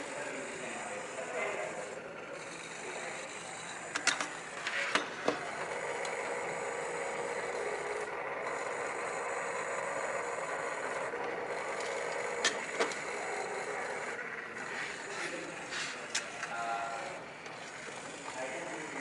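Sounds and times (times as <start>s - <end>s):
plastic modules clicking together: 3.9s - 5.4s.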